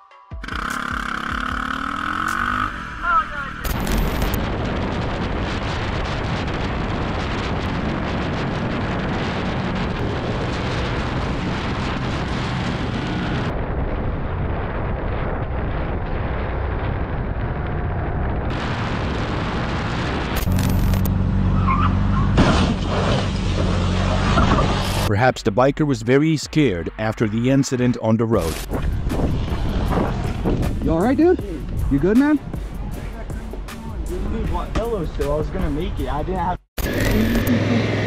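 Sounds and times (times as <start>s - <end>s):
motorcycle engine: 0.3s - 4.8s
wind rush and road noise: 2.0s - 38.0s.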